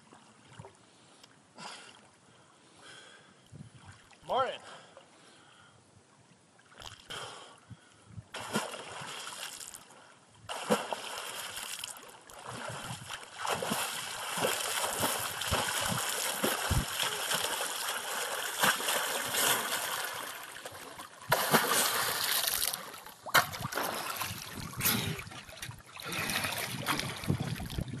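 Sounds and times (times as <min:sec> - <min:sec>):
sharp slaps of water: 0:08.3 - 0:09.8, 0:10.5 - 0:27.8.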